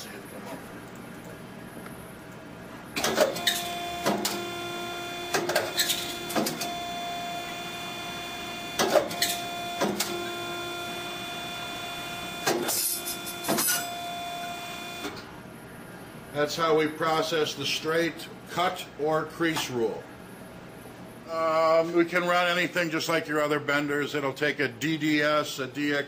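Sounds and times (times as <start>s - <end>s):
feed motors whining: 3.0s - 15.2s.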